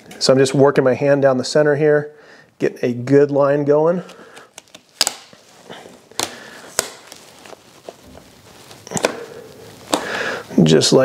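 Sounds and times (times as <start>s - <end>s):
rustling and rubbing: 4.5s - 11.0s.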